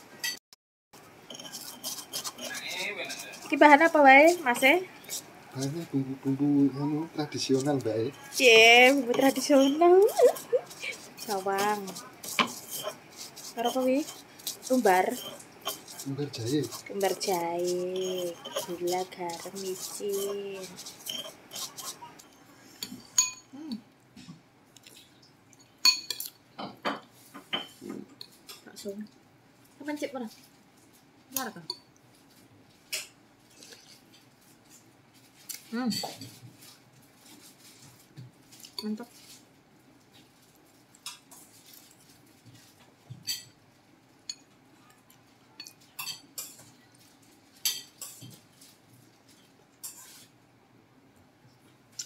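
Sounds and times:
spoon scraping bowl: 0:01.2 - 0:23.5, 0:45.6 - 0:46.9, 0:47.6 - 0:50.4
spoon clinking ceramic bowl: 0:09.0 - 0:11.4, 0:12.2 - 0:17.1, 0:17.9 - 0:22.0, 0:22.9 - 0:23.5, 0:25.8 - 0:26.4.

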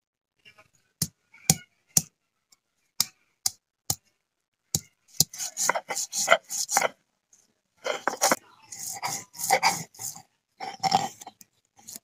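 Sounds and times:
stone grinding scrape: 0:05.2 - 0:07.0, 0:07.8 - 0:12.0.

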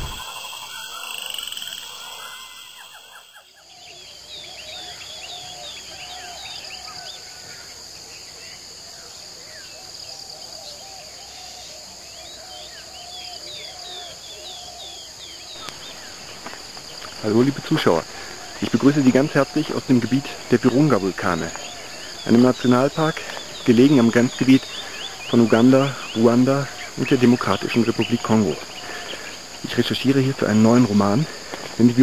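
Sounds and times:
chirping calls: 0:00.0 - 0:07.4, 0:09.6 - 0:32.0
high insect buzz: 0:00.0 - 0:09.1, 0:12.3 - 0:32.0.

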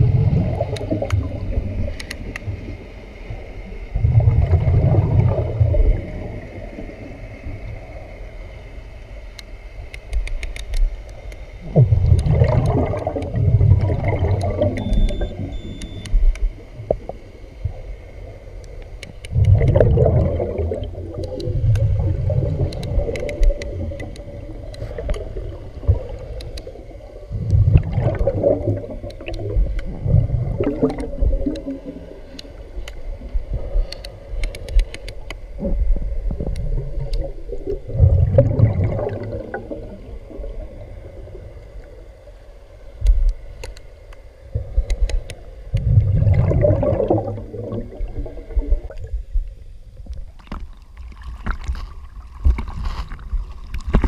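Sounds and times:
bubbles gurgling: 0:00.0 - 0:01.9, 0:03.9 - 0:07.6, 0:11.6 - 0:15.7, 0:19.3 - 0:32.3, 0:35.6 - 0:41.6, 0:45.7 - 0:49.2
low rumble of water: 0:00.0 - 0:54.0
scattered clicks: 0:01.9 - 0:02.5, 0:09.3 - 0:11.4, 0:12.0 - 0:13.4, 0:14.2 - 0:16.5, 0:21.2 - 0:21.9, 0:22.6 - 0:25.3, 0:26.1 - 0:26.7, 0:29.0 - 0:29.9, 0:30.8 - 0:31.7, 0:33.8 - 0:35.4, 0:43.0 - 0:44.2, 0:44.8 - 0:45.9
water sloshing: 0:50.1 - 0:54.0.

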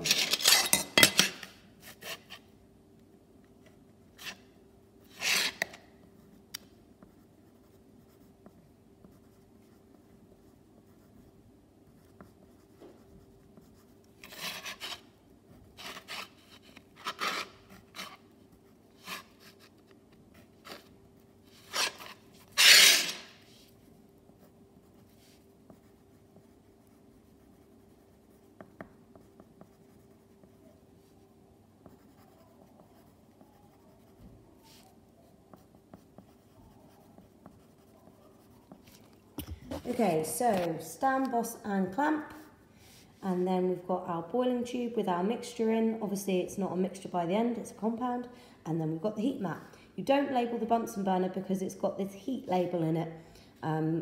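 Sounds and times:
faint steady hum: 0:00.0 - 0:54.0
pencil writing on paper: 0:07.0 - 0:15.0, 0:24.2 - 0:30.8, 0:31.8 - 0:34.9, 0:35.5 - 0:39.0.

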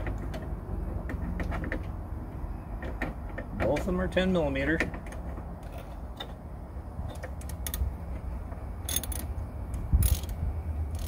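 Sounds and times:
metallic knocks: 0:00.0 - 0:06.4
ratchet wrench clicking: 0:08.8 - 0:11.0.

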